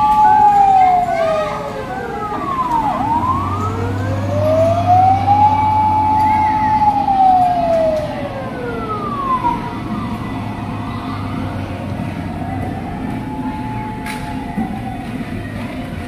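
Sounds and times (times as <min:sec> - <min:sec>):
higher siren wail: 0:00.0 - 0:15.4
wailing siren: 0:00.0 - 0:15.7.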